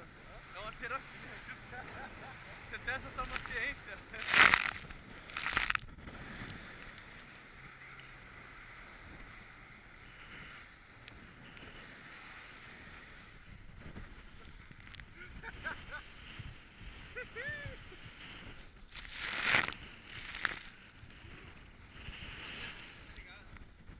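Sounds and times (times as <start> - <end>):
outboard motor drone: 5.9 - 14.4.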